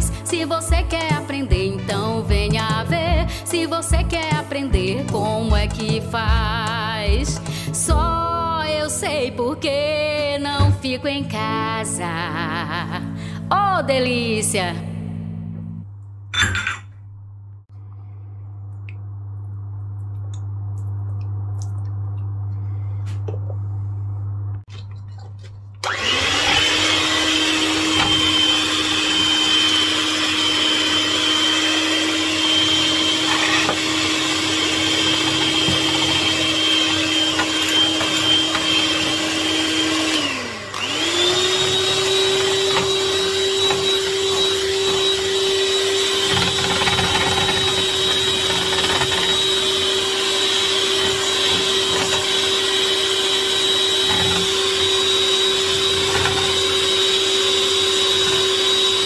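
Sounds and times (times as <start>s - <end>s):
electric mixer motor running: 25.8s - 59.0s.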